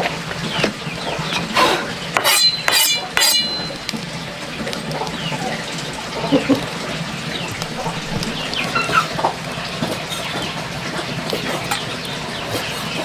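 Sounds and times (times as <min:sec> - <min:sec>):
chickens clucking: 0:04.8 - 0:13.0.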